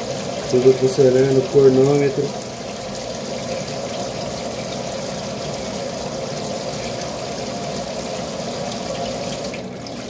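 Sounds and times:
faucet water splashing into sink: 0.0 - 10.0.

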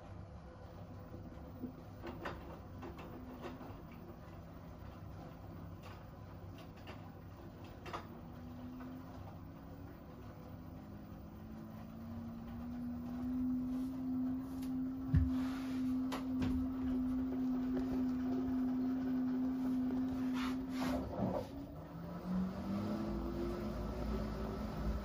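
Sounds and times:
washing machine motor hum: 0.0 - 25.0.

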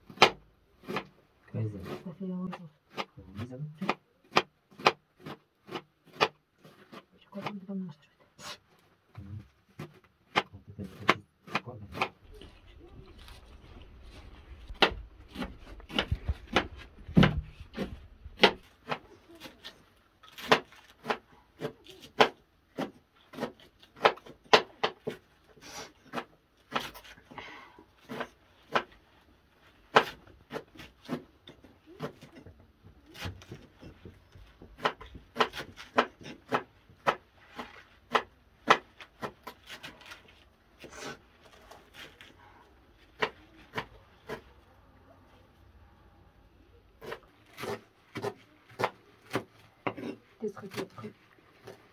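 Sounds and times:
knives snipping leafy greens: 9.8 - 12.5, 13.1 - 25.2, 26.0 - 27.2, 33.0 - 42.3, 47.0 - 51.9.

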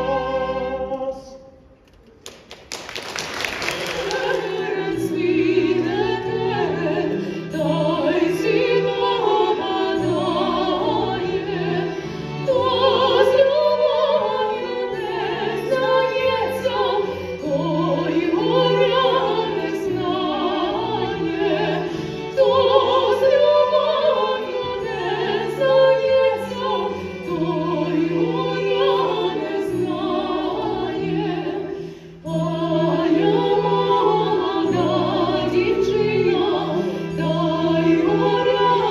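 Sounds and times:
woman singing opera: 0.0 - 1.5, 3.8 - 38.9
orchestral accompaniment: 2.7 - 38.9.

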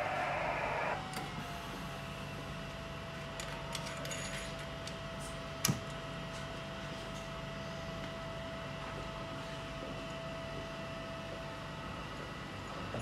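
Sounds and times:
receiver hiss: 0.0 - 1.0
steady whistle tone: 0.0 - 1.0.

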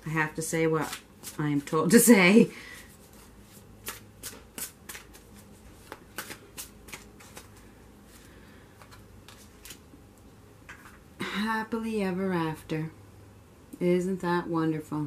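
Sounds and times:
cards being shuffled: 0.8 - 1.8, 2.8 - 9.8.

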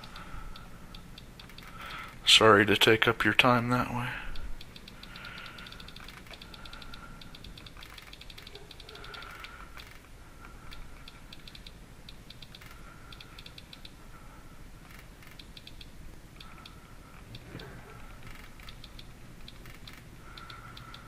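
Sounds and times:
low steady hum: 0.0 - 21.0
click wheel rapid clicks: 4.6 - 10.0, 11.0 - 14.0, 14.9 - 17.4.

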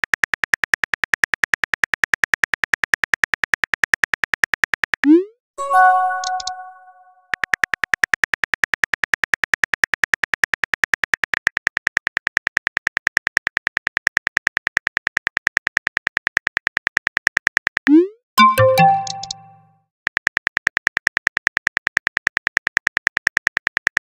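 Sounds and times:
text message chime: 5.6 - 7.2, 18.0 - 19.7.

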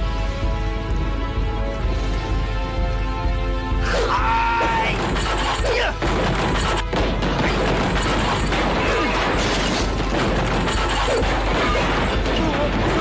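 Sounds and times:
background music: 0.0 - 13.0
debris crashing down: 4.7 - 13.0.

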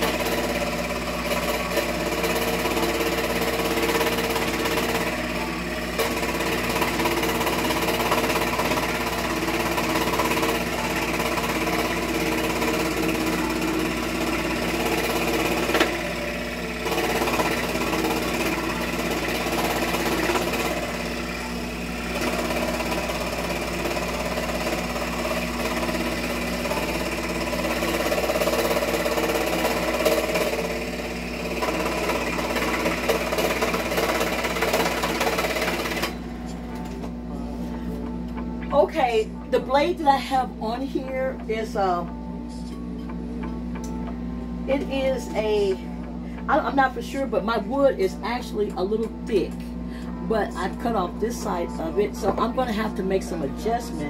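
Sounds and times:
scroll saw cutting wood: 0.0 - 36.2.

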